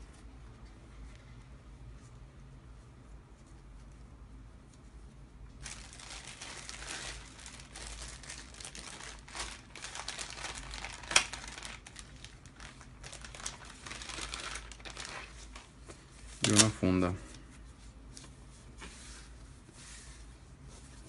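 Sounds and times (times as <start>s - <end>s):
plastic bags crinkling: 5.6s - 15.7s, 16.4s - 17.0s.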